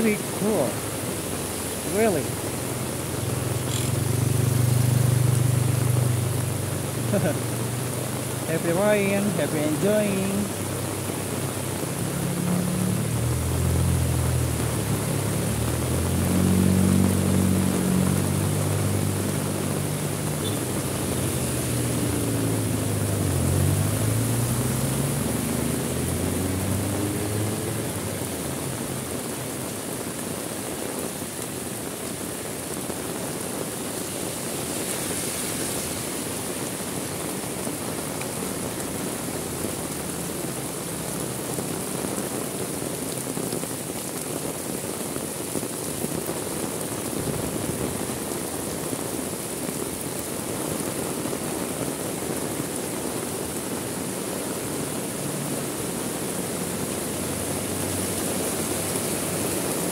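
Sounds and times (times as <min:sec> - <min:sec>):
passing vehicle engine: 0:00.0 - 0:30.8, 0:31.7 - 0:43.4, 0:55.0 - 0:59.9
heavy rain hissing: 0:00.0 - 0:59.9.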